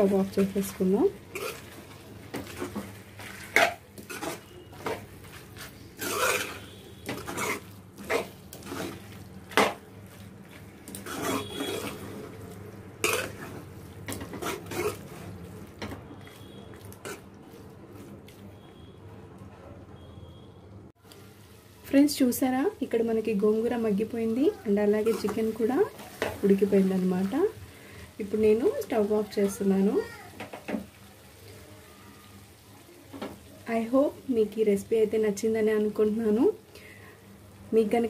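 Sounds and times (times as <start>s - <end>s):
spatula scraping metal pan: 1.3s - 9.8s, 10.5s - 12.4s, 13.0s - 15.2s.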